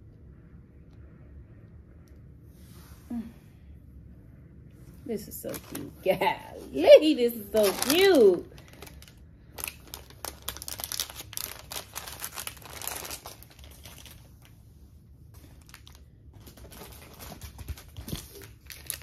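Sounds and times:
plastic bag crinkling: 5.2s - 14.6s, 15.3s - 19.0s.

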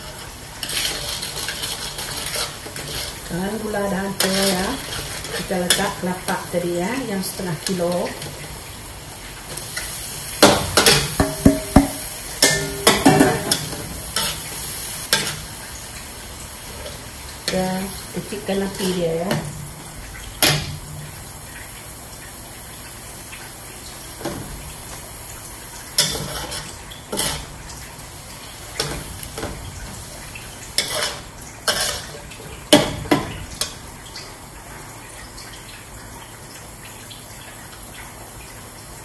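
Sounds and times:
metal spatula scraping wok: 0.6s - 3.3s, 4.2s - 5.9s, 26.0s - 27.5s, 30.8s - 32.2s.

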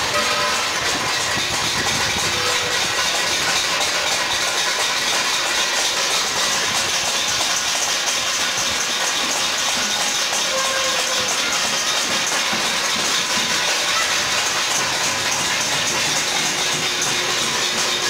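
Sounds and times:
metal plates being beaten: 0.0s - 18.0s.

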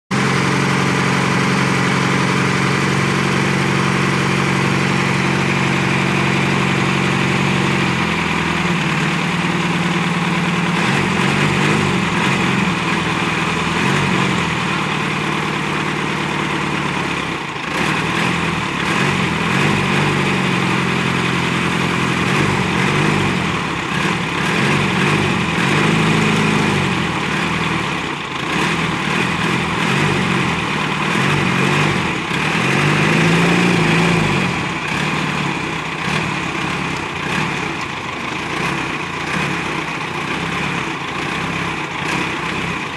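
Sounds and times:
diesel engine idling and revving: 0.1s - 42.9s.

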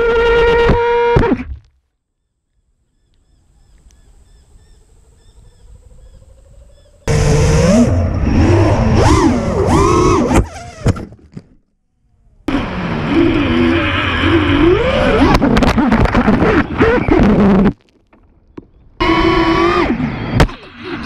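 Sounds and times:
drone motors whining: 4.7s - 11.2s, 12.1s - 17.7s, 18.9s - 21.0s.

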